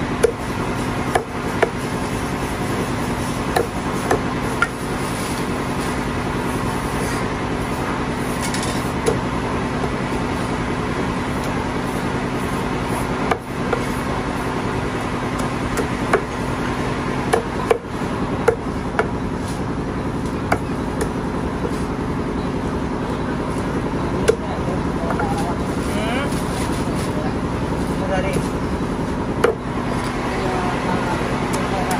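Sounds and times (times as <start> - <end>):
steady hum: 0.0 - 31.9
cleaver chopping on wooden block: 0.2 - 0.4, 1.0 - 1.8, 3.5 - 4.8, 13.3 - 13.9, 15.4 - 16.3, 17.3 - 19.1, 20.5 - 21.2, 29.4 - 29.6.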